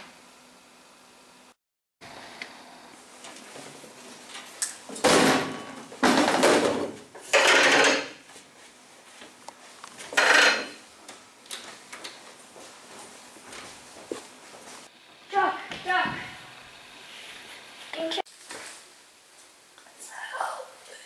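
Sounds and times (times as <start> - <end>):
chair and table crashing and scraping: 4.9 - 8.3, 10.0 - 10.8.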